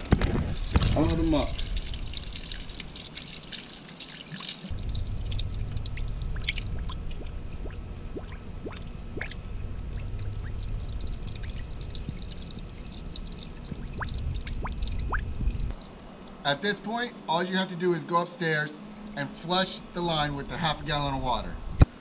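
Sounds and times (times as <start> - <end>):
low rumble: 0.0 - 3.0, 4.7 - 15.8
water pouring onto gravel: 0.0 - 15.6
water dripping: 0.0 - 16.4.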